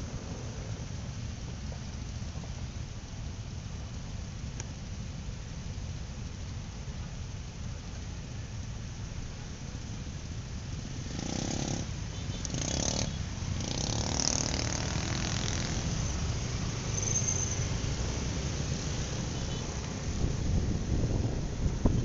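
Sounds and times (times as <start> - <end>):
vehicle pulling away: 10.8 - 21.9.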